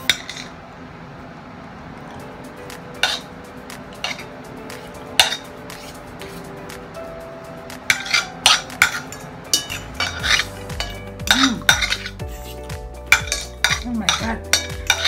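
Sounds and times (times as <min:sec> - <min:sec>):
cutlery clinking on plates: 0:05.2 - 0:05.9, 0:07.9 - 0:12.2, 0:13.1 - 0:15.0.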